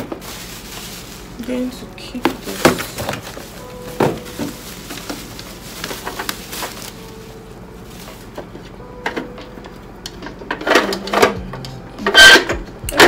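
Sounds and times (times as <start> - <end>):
bubble wrap crinkling: 0.0 - 9.5.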